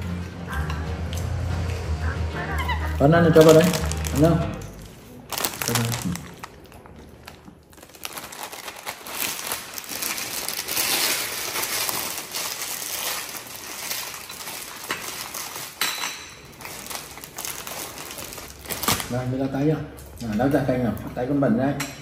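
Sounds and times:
plastic snack packet crinkling: 0:03.3 - 0:15.8, 0:16.4 - 0:19.4.

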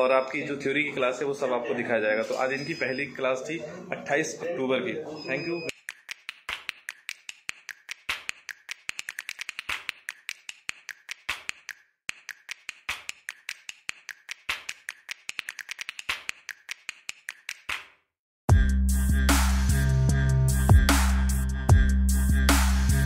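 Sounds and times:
rapid sharp clicks: 0:05.7 - 0:17.8.

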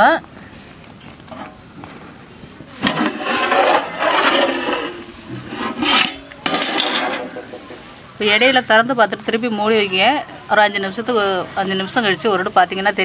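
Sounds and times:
metal lid clattering knocks: 0:02.8 - 0:07.8
metal lid scraping on pot: 0:02.8 - 0:07.8.

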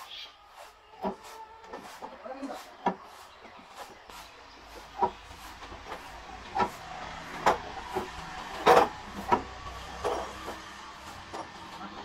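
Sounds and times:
machinery knocks and clanks: 0:05.0 - 0:12.0.

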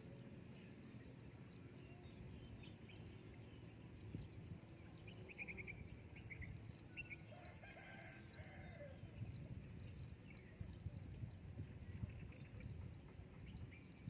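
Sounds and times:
small bird chirping: 0:00.1 - 0:07.3.

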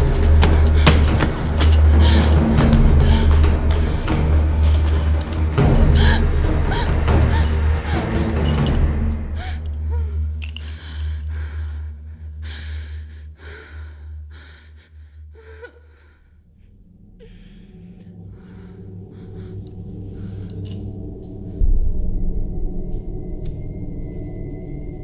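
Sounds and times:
woman breathing heavily and gasping: 0:00.0 - 0:21.4
low dark drone: 0:00.0 - 0:25.0
deep low boom: 0:21.2 - 0:25.0.

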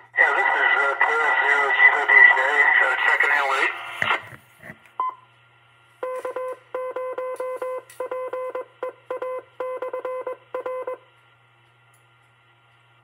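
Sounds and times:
morse code tone: 0:06.0 - 0:11.0.

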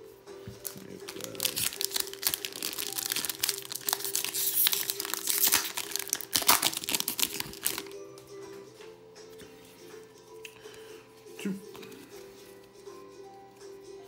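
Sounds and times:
foil wrapper crinkling: 0:00.6 - 0:07.9.

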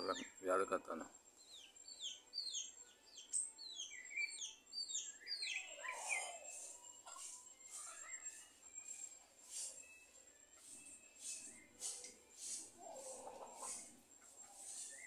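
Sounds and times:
bird whistling downward notes: 0:01.5 - 0:13.8.

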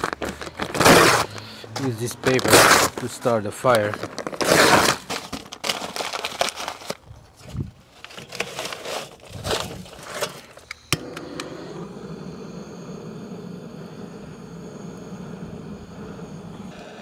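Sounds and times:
paper crumpling: 0:00.0 - 0:10.6
charcoal shifting in metal starter: 0:09.9 - 0:16.6
gas torch igniter click: 0:10.7 - 0:15.8
gas torch flame hissing: 0:10.9 - 0:17.0.

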